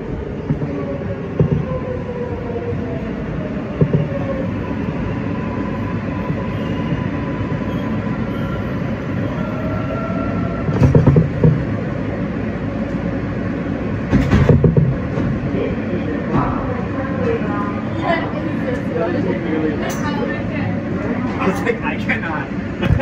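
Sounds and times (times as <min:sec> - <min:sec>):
wheels clunking over rail joints: 0:00.0 - 0:02.1, 0:02.9 - 0:04.4, 0:10.6 - 0:12.0, 0:14.0 - 0:15.6
wheels rumbling on rail: 0:00.0 - 0:23.0.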